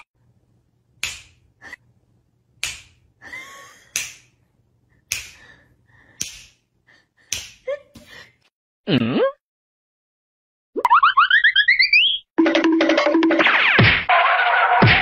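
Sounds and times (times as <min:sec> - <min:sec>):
fingers snapping: 0:01.0 - 0:01.4, 0:02.6 - 0:03.0, 0:03.9 - 0:04.4, 0:05.1 - 0:05.6, 0:06.2 - 0:06.6, 0:07.3 - 0:07.7.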